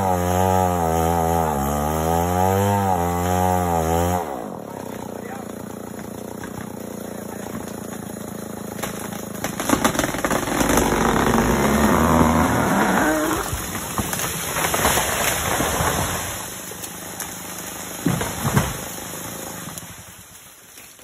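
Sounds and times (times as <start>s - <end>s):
chainsaw engine running: 0.0s - 20.3s
wood cracking and crashing: 0.1s - 21.0s.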